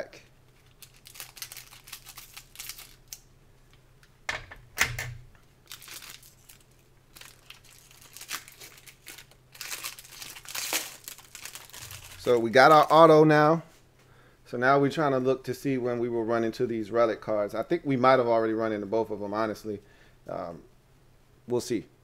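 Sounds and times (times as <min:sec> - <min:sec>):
foil wrapper crinkling: 0:00.2 - 0:03.3, 0:05.6 - 0:13.1.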